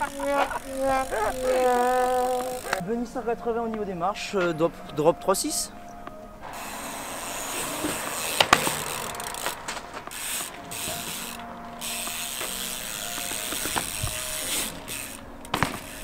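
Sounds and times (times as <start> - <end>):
bicycle freewheel ratcheting: 0.0 - 2.8, 6.5 - 16.0.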